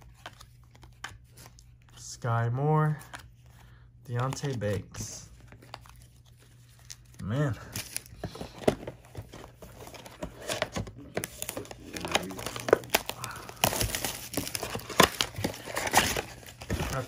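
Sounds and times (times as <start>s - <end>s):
crinkling packaging: 5.4s - 17.0s
cardboard tearing: 9.7s - 17.0s.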